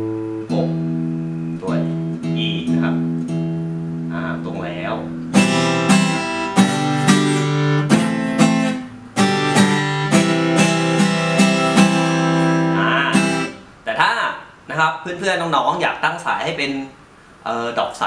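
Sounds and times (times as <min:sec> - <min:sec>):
acoustic guitar strumming: 0:00.0 - 0:13.8.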